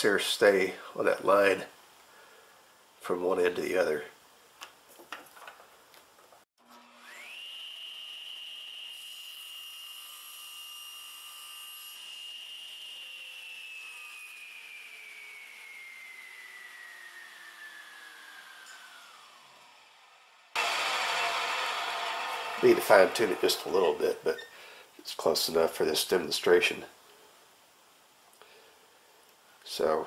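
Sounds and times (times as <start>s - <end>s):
table saw motor whine: 6.6s - 24.5s.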